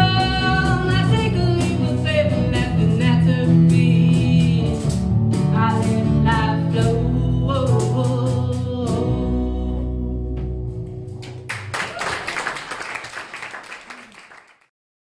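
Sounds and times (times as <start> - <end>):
woman singing: 0.0 - 10.1
acoustic guitar: 0.0 - 11.5
bass guitar: 0.0 - 11.8
audience applause: 11.2 - 14.7.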